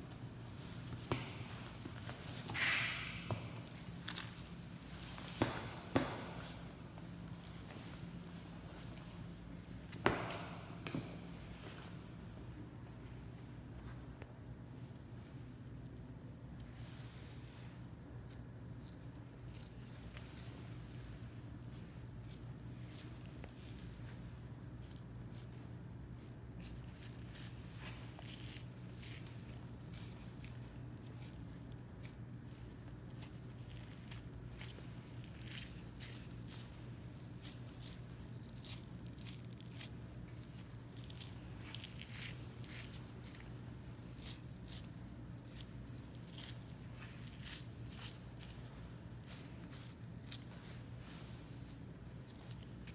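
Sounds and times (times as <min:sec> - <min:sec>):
steady low hum: 0:00.0 - 0:52.9
knife cutting and tearing fat: 0:18.1 - 0:50.5.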